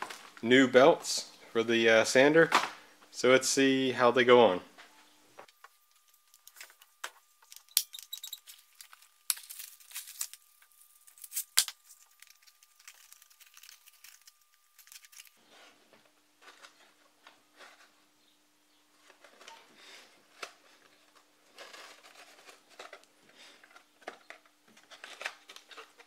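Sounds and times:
crackling: 5.4 - 15.4.

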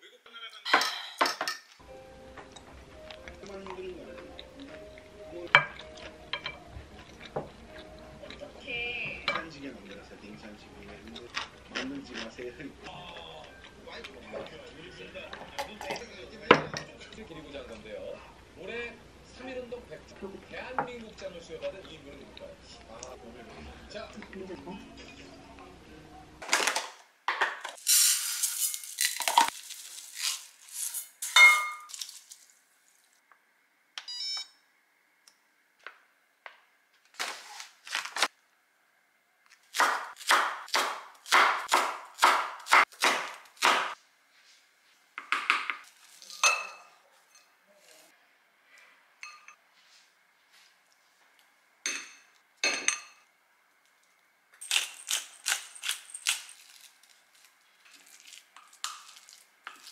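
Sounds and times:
dishes and utensils clinking: 0.7 - 4.8, 5.5 - 8.5, 9.2 - 10.1, 14.2 - 17.2, 30.8 - 32.1, 45.3 - 47.6, 49.2 - 49.6, 51.9 - 53.3
knife chopping on wooden board: 39.8 - 44.0.

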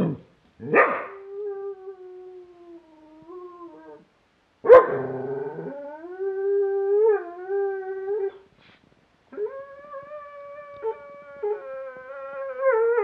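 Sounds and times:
dog howling: 4.9 - 8.4, 9.4 - 13.0.

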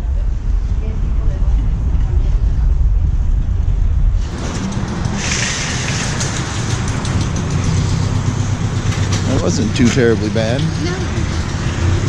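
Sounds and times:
shopping cart rolling over pavement: 4.2 - 12.0
tyres hissing on wet pavement: 5.1 - 6.8.

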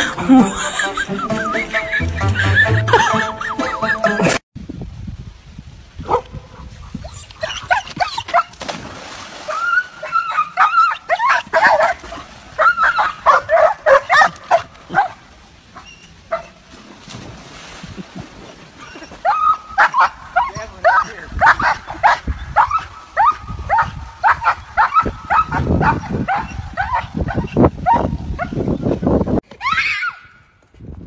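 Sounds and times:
dogs yipping and whining: 7.0 - 8.6, 9.5 - 15.2, 15.8 - 16.6, 18.8 - 28.6.

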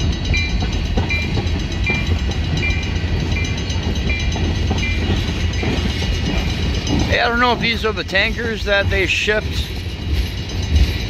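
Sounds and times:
train wheels rumbling on rails: 0.0 - 11.0.

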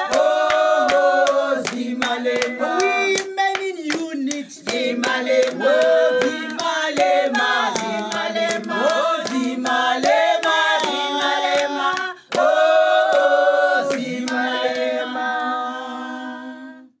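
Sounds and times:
a cappella group singing: 0.0 - 17.0.

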